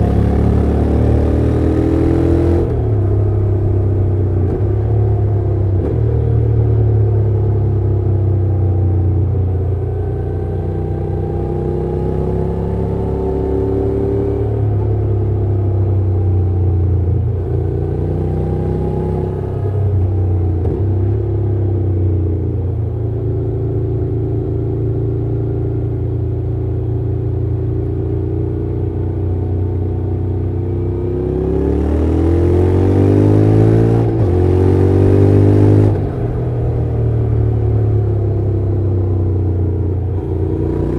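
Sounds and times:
motorcycle engine accelerating: 0.0s - 40.9s.

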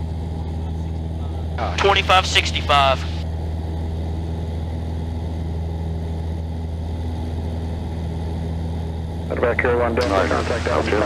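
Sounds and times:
airplane engine droning: 0.0s - 11.0s.

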